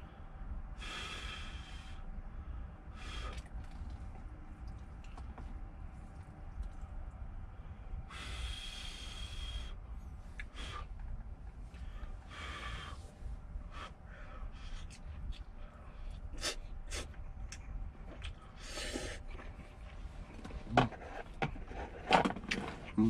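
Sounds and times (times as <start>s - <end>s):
steady low hum: 0.0s - 23.0s
chewing: 17.0s - 20.1s.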